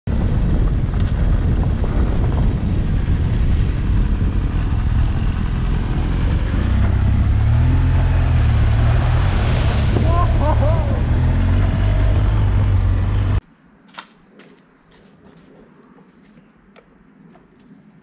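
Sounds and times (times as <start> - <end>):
motorcycle engine rumble: 0.1 - 13.5
tyres on gravel track: 0.1 - 18.0.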